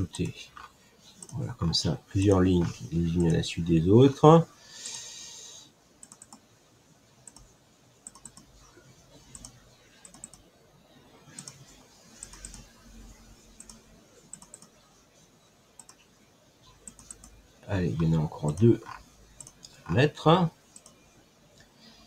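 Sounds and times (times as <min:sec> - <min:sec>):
faint computer mouse clicks: 0:06.0 - 0:06.4, 0:07.3 - 0:08.5, 0:13.6 - 0:14.8, 0:15.8 - 0:16.0, 0:16.8 - 0:17.4, 0:20.7 - 0:21.7.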